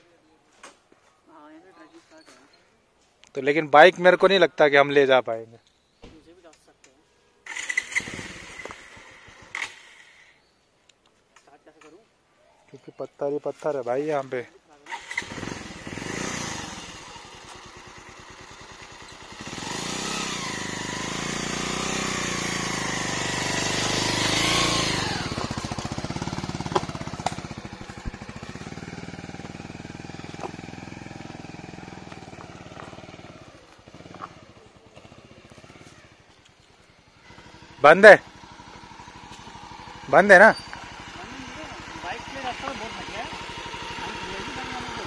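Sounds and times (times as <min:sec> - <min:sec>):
motorcycle engine revving: 0:07.4 - 0:10.3, 0:14.8 - 0:45.0.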